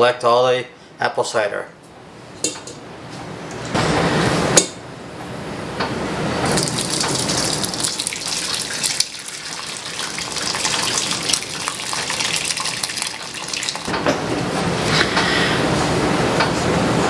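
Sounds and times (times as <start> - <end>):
liquid pouring and splashing: 6.4 - 14.0
wet crackling of fruit pulp: 6.5 - 13.9.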